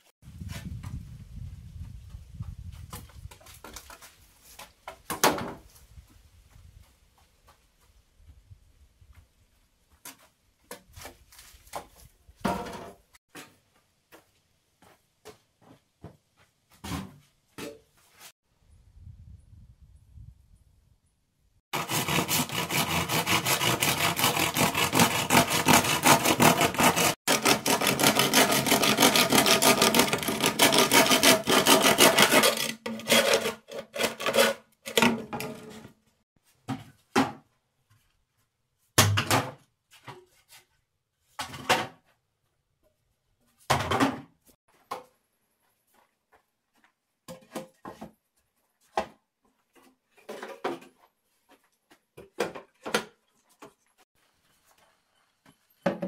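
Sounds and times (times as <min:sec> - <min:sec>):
tool rubbing wood: 0:21.8 - 0:35.0
scrapes and knocks on wood: 0:21.8 - 0:36.0, 0:46.7 - 0:56.0.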